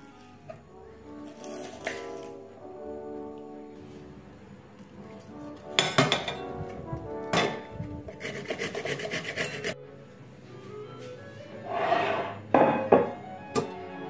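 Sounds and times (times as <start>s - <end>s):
background music: 0.0s - 14.0s
vegetable grating on metal grater: 8.1s - 9.8s.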